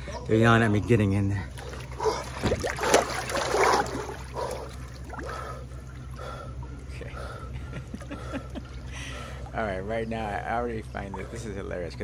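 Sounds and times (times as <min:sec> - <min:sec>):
steady low hum: 0:00.0 - 0:12.0
water splashing loudly: 0:01.6 - 0:04.3
man breathing hard: 0:04.3 - 0:09.5.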